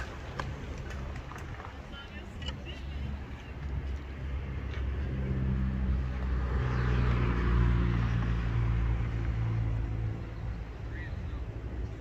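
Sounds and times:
vehicle engine passing by: 4.2 - 11.6.

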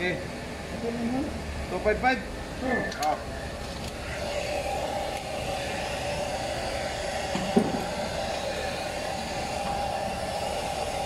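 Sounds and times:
machine droning: 0.0 - 11.0
brief knock: 7.4 - 7.8.

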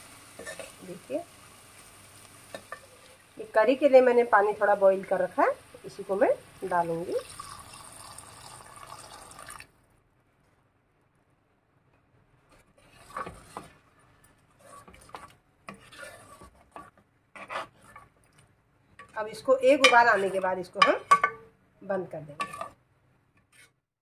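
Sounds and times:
metal spoon scraping pan: 0.4 - 1.0, 12.5 - 13.9, 14.5 - 18.1, 19.0 - 21.4, 22.3 - 22.8, 23.4 - 23.8
water pouring into pan: 7.1 - 9.7.

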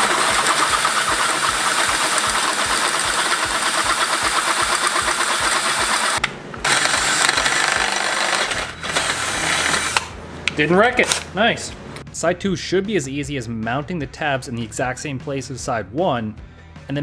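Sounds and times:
cordless drill boring through metal: 0.0 - 10.1.

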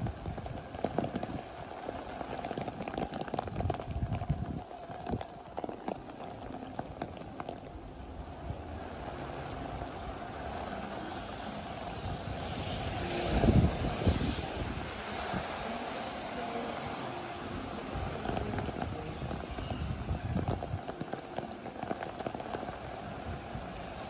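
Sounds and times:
footsteps on wet pavement: 0.0 - 24.0
rain hiss: 0.0 - 24.0.

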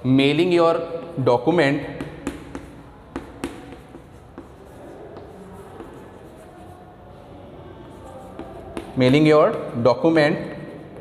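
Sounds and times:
chalk scratching on chalkboard: 2.0 - 7.0, 7.8 - 9.8.

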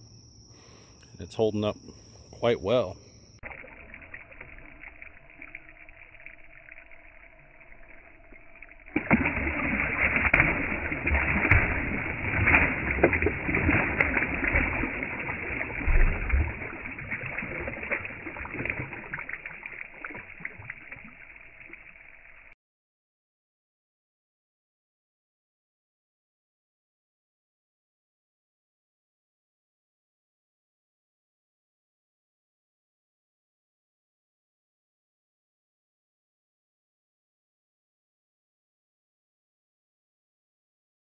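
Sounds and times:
fish thrashing and splashing water: 3.4 - 22.1.

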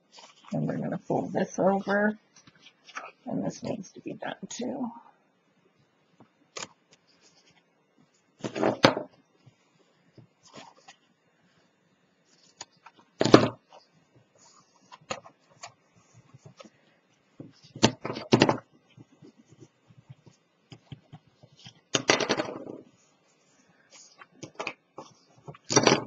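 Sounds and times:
paper rustling and knocking: 8.4 - 11.0, 17.4 - 23.0, 24.1 - 26.0.

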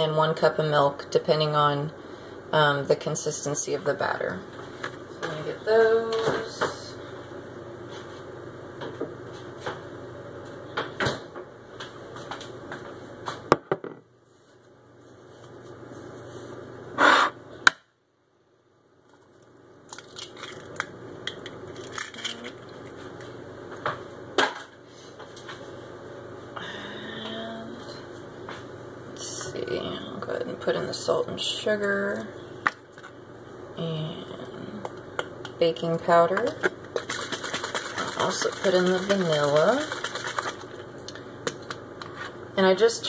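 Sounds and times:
steady background hum: 0.0 - 43.0
kitchen items clicking and knocking: 36.3 - 40.6.

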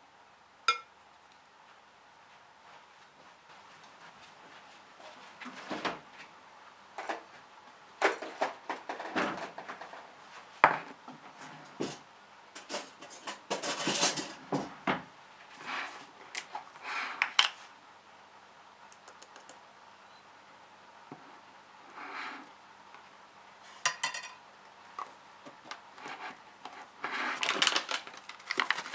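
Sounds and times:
containers clinking and knocking: 23.9 - 24.4.

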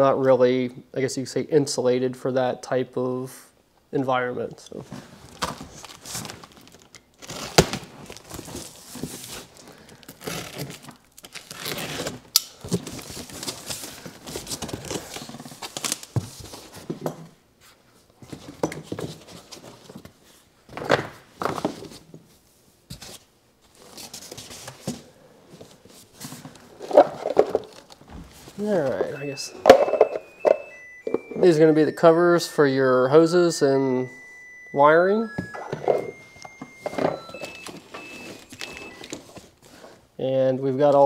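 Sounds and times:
foam packing rustling: 4.9 - 16.9.

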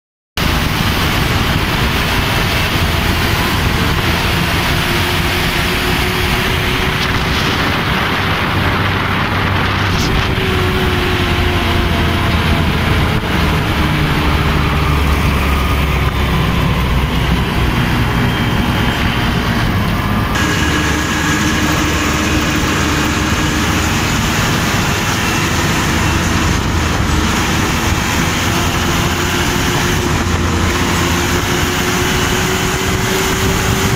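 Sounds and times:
road noise: 0.4 - 33.9
tractor diesel engine running: 0.4 - 33.9.

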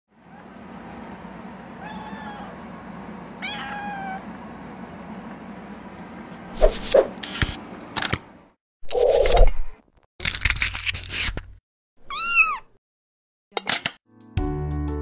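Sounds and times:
cat meowing: 1.8 - 2.6, 3.4 - 4.2, 12.1 - 12.7.

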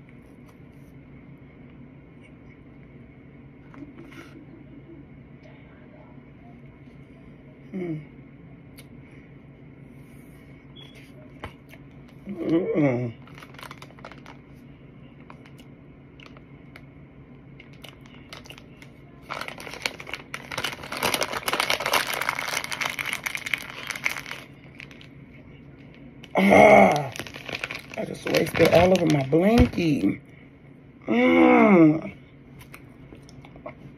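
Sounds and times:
person humming mmm: 7.7 - 8.2, 12.3 - 13.2, 31.0 - 32.2
plastic bag crinkling: 13.2 - 14.6, 15.2 - 15.6, 17.6 - 25.2, 25.8 - 30.1.

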